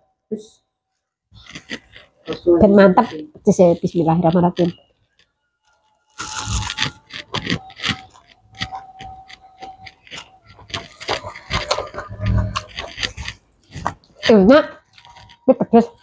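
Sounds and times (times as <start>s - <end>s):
fingers scraping food on plates: 1.3s - 16.0s
crisp fried food crunching: 5.7s - 16.0s.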